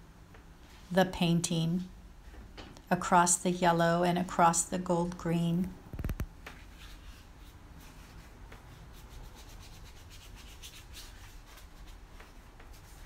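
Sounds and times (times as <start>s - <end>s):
paintbrush strokes on paper: 6.5s - 13.0s.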